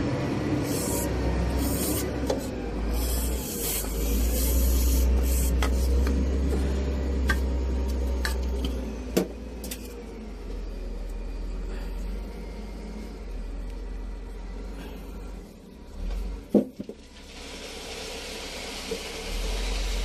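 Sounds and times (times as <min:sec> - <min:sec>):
spray hissing and rubbing: 0:00.6 - 0:06.1.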